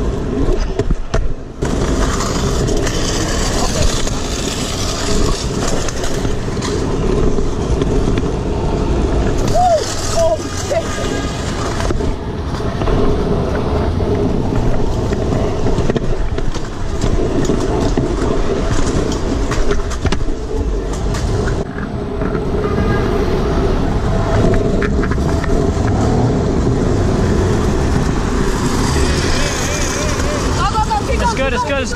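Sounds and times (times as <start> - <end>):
passing car traffic: 0.0 - 31.9
road noise: 0.0 - 31.9
clicks and rattles from bumps: 0.5 - 8.3, 14.5 - 22.4.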